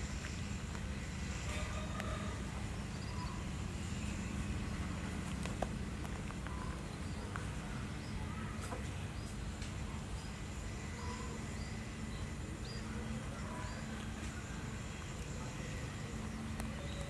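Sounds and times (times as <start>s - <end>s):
low outdoor rumble: 0.0s - 17.0s
small birds chirping: 0.1s - 17.0s
low bird calls: 1.0s - 9.4s.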